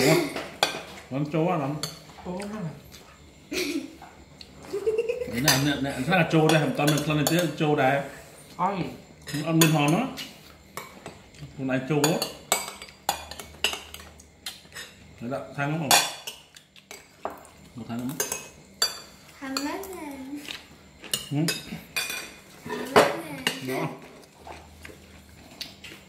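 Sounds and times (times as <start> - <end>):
cutlery clinking on plates: 5.4 - 7.6, 12.0 - 15.0, 21.0 - 23.7.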